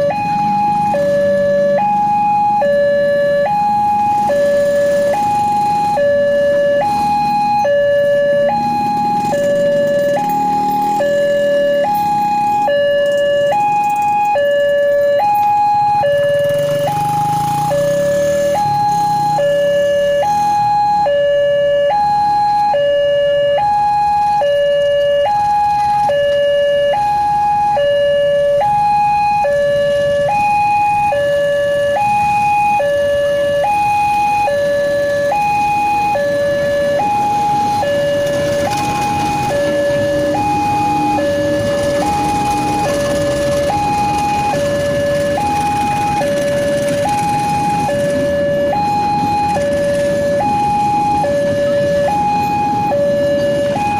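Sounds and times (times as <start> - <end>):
level crossing two-tone alarm: 0.0 - 53.9
freight train rumbling past: 36.6 - 51.2.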